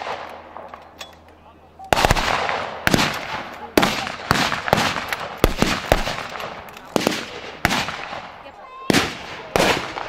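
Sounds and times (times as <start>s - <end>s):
rifle shots with echo: 0.0s - 0.9s, 1.9s - 10.0s.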